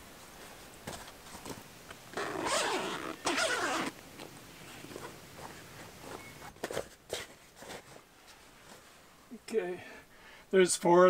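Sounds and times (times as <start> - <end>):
zipper pulled open: 2.1 - 4.0.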